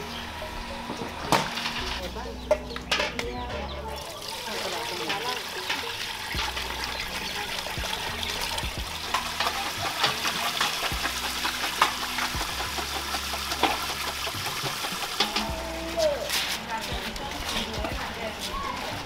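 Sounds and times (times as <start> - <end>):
liquid pouring: 4.0 - 15.8.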